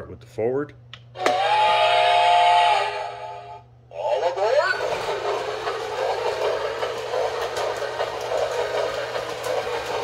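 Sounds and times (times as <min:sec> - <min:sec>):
toy train motor whir: 0:04.8 - 0:10.0.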